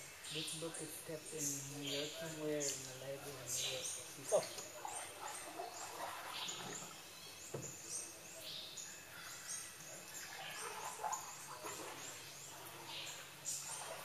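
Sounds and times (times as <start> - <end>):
birds chirping: 0.0 - 14.0
faint background hiss: 0.0 - 14.0
soft knock: 7.5 - 7.8.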